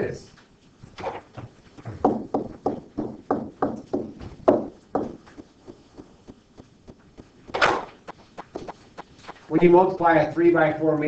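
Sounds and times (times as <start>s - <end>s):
stylus tapping on tablet screen: 1.4s - 9.5s.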